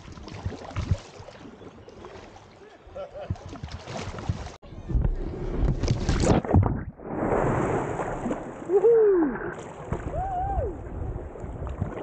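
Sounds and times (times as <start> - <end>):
paddle strokes splashing water: 0.0 - 4.6, 9.4 - 10.2.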